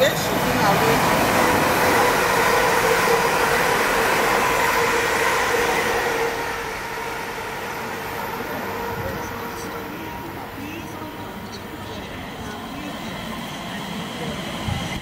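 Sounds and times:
train rail rumble: 0.0 - 15.0
train traction whine: 0.0 - 15.0.

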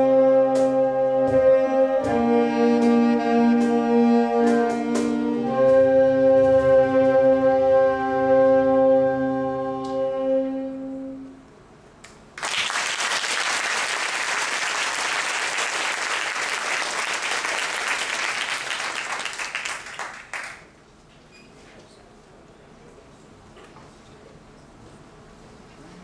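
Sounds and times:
saxophone ensemble chord: 0.0 - 11.4
audience applauding: 12.4 - 20.7.

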